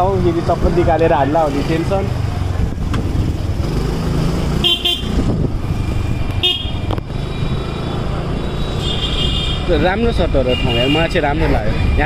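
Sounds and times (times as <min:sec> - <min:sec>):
traffic engine rumble: 0:00.0 - 0:12.0
vehicle horn tooting: 0:04.6 - 0:05.2, 0:06.4 - 0:06.8.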